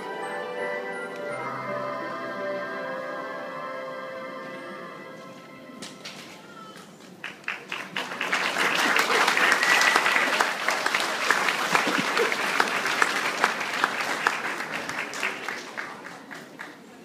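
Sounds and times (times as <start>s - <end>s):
audience clapping: 6.8s - 17.0s.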